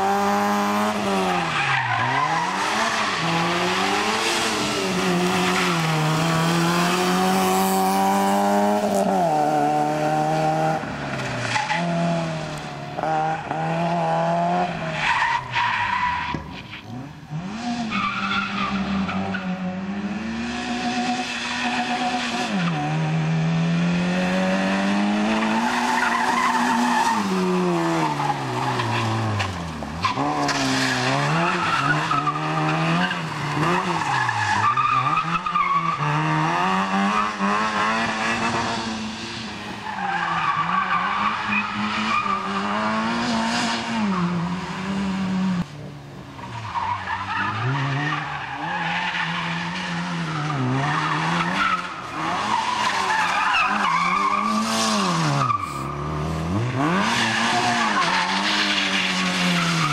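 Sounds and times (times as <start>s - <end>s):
car engine revving: 0.0s - 16.2s, 46.4s - 59.9s.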